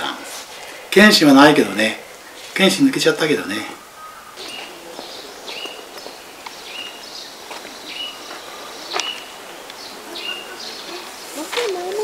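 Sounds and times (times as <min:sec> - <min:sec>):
outdoor ambience: 0:00.0 - 0:12.0
bird chirping: 0:01.3 - 0:12.0.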